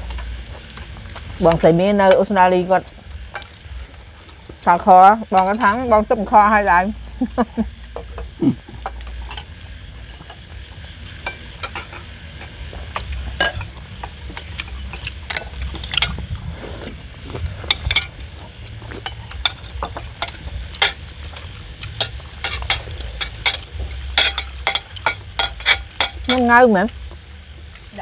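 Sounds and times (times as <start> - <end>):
steady low hum: 0.0 - 28.0
spoons and shells clinking on bowls: 13.4 - 13.8, 19.0 - 26.6.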